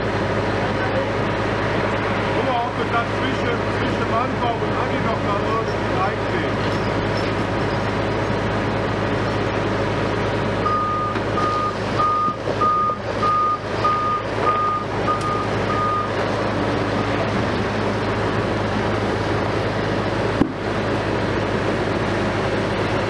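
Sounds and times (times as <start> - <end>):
heavy vehicle engine running: 0.0 - 23.0
reversing alarm beeping: 10.6 - 16.2.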